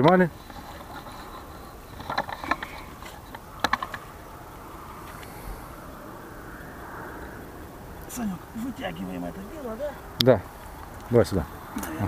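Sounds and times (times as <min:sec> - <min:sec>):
keepnet clicks and rattles: 0:00.0 - 0:04.1.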